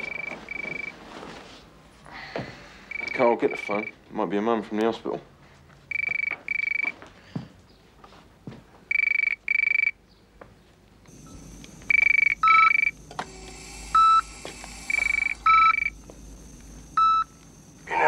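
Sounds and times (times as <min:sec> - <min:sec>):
heart monitor beeping: 0:00.0 - 0:01.0, 0:02.9 - 0:04.0, 0:05.9 - 0:07.0, 0:08.9 - 0:10.0, 0:11.1 - 0:18.0
telephone ringing: 0:00.0 - 0:01.0, 0:02.9 - 0:04.0, 0:05.9 - 0:07.0, 0:08.9 - 0:10.0, 0:11.1 - 0:18.0
steady hiss: 0:11.1 - 0:18.0.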